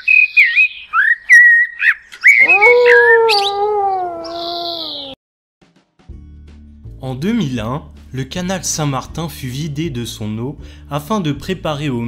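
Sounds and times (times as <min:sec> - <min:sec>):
quick whistled chirps: 0:00.1 - 0:02.4.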